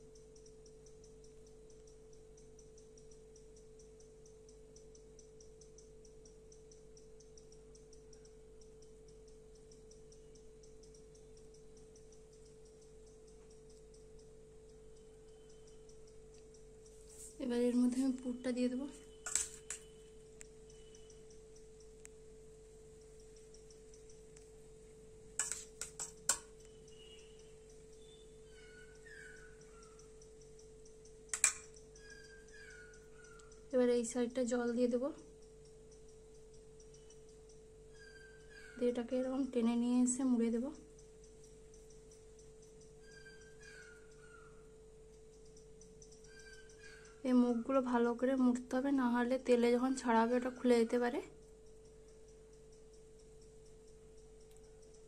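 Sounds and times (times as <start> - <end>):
fast high-pitched ticking: 0.0 - 55.0
steady hum: 0.0 - 55.0
metal spoon clinking steel bowl: 19.2 - 19.9, 25.4 - 26.6, 31.3 - 31.8.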